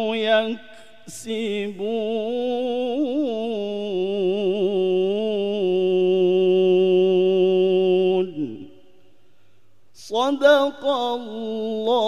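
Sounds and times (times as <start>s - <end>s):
man chanting melodically: 0.0s - 9.0s, 10.0s - 12.0s.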